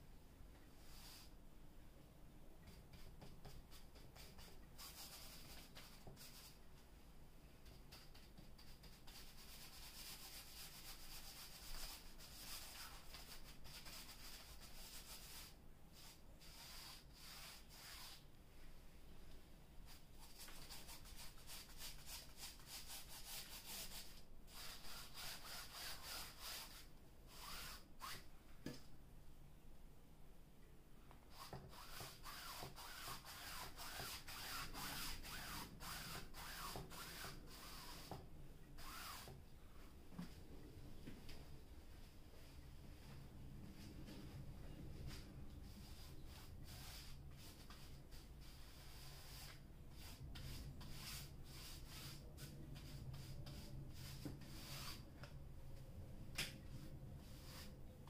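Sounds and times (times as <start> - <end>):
foam brush rubbing on canvas: 9.1 - 18.2, 31.4 - 38.2, 45.1 - 55.0, 57.2 - 57.8.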